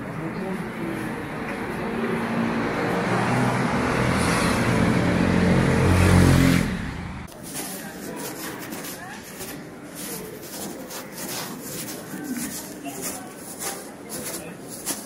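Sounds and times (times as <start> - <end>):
indoor hall ambience: 6.0 - 15.0.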